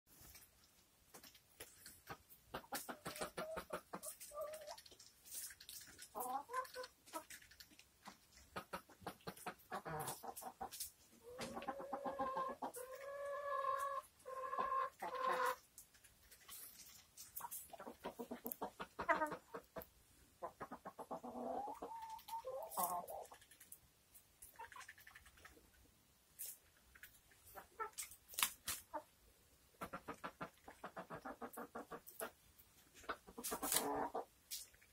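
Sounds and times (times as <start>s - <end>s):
hens clucking: 1.9s - 15.7s, 16.5s - 23.5s, 27.0s - 34.3s.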